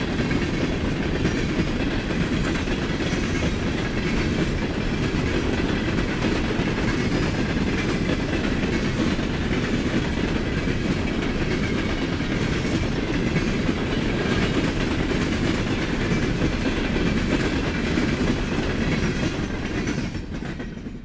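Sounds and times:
freight train cars rolling past: 0:00.0 - 0:21.0
steel wheels on rails: 0:00.0 - 0:21.0.

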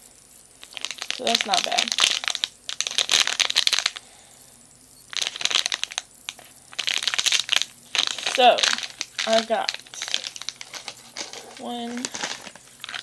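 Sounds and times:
plastic candy wrapper crackling: 0:00.6 - 0:04.0, 0:05.1 - 0:13.0.

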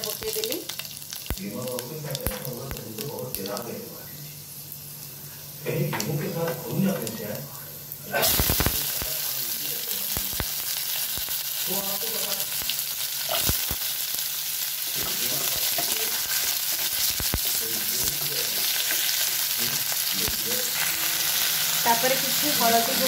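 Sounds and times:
vegetables sizzling in hot oil: 0:00.0 - 0:23.0.

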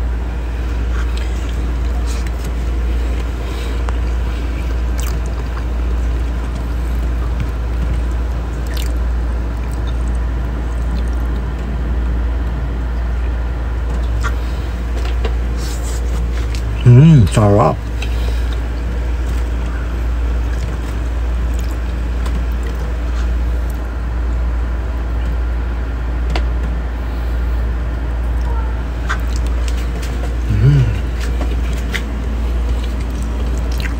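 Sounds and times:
steady low hum: 0:00.0 - 0:33.9
soft squishes of food pressed by hand: 0:00.6 - 0:11.8, 0:13.8 - 0:16.8, 0:17.8 - 0:24.4, 0:28.2 - 0:33.9.

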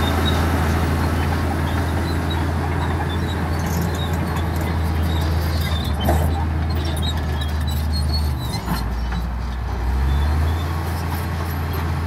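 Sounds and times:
rock and soil grinding: 0:00.0 - 0:09.4
bulldozer diesel drone: 0:00.0 - 0:12.0.

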